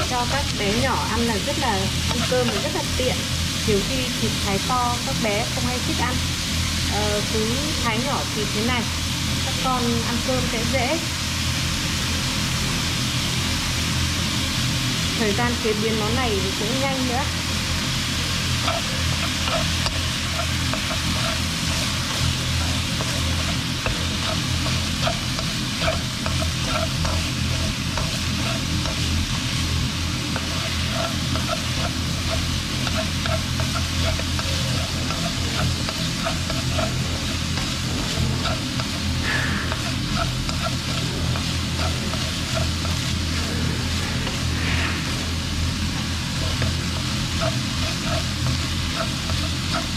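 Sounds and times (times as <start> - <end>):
food sizzling in a wok: 0.0 - 49.9
steady low hum: 0.0 - 49.9
chopsticks clicking and scraping pan: 0.2 - 3.0, 18.3 - 43.6, 45.8 - 49.9.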